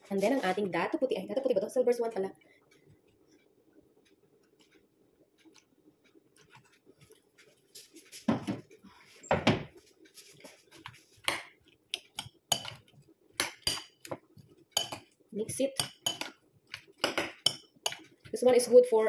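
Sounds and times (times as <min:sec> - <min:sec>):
metal spoon clinking glass bowl: 0:12.5 - 0:12.8, 0:14.8 - 0:15.1, 0:15.8 - 0:16.3, 0:17.1 - 0:18.1.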